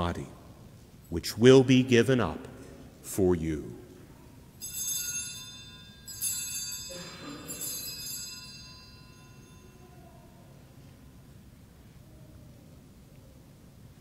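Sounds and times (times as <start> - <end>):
altar bells ringing: 4.6 - 10.6.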